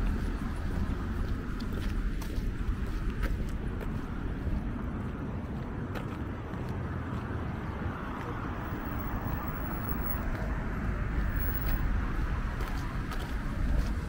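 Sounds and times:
traffic rumble: 0.0 - 14.0.

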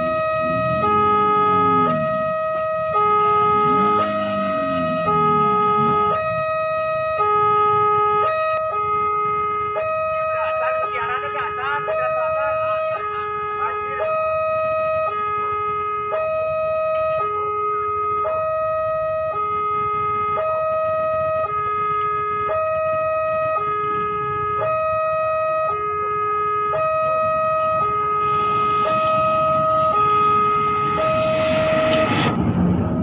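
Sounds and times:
diesel train rumble: 0.0 - 6.5, 27.2 - 33.0
steady high tone: 0.0 - 6.6, 27.6 - 33.0
two-tone warning siren: 0.0 - 33.0.

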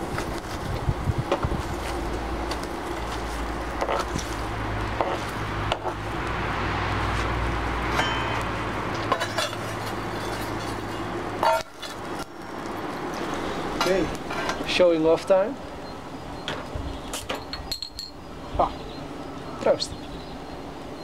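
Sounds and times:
forge fire burning with low hum: 0.0 - 17.1
steel tongs clinking and scraping: 7.9 - 14.6.

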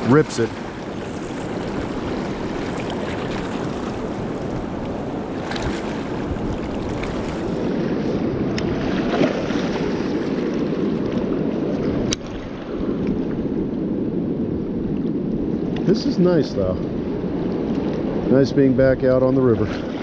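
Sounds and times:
river current rushing: 0.0 - 13.4
wind on microphone: 0.0 - 20.0.

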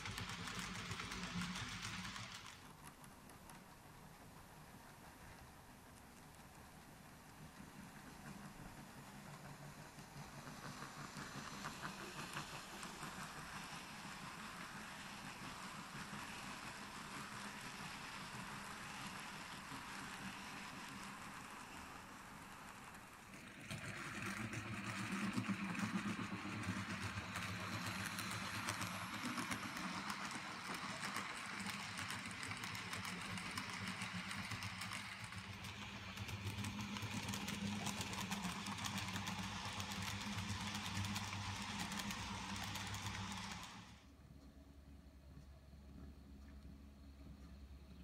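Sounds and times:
model train motors whirring: 0.0 - 44.1
rapid fine clicking: 26.4 - 44.0.

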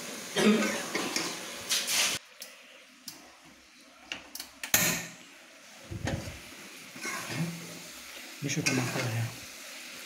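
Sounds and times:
sauce sizzling in a wok: 0.0 - 2.3, 5.0 - 10.0.

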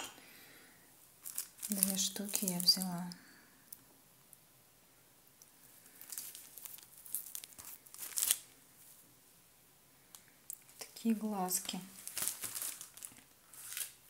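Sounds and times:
plastic packaging crinkling: 1.2 - 3.2, 5.8 - 8.6, 11.5 - 14.0.

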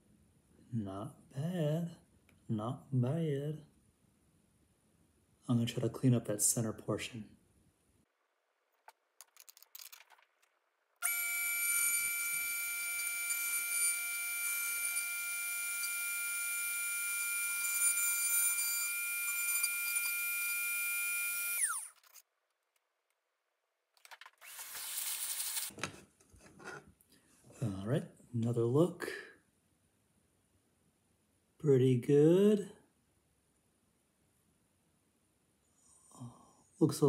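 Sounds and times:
rotary tool whining: 11.0 - 22.2, 24.3 - 25.7.

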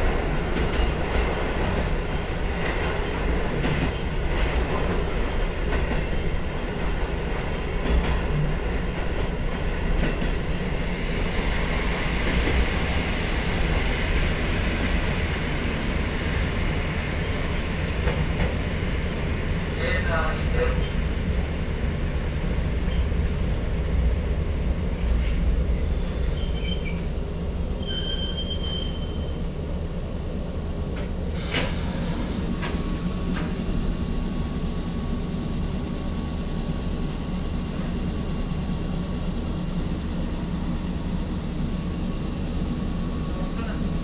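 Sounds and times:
train rumble and hum: 0.0 - 44.0
wheel or brake squeals: 25.2 - 29.4
loud hiss: 31.3 - 33.2.

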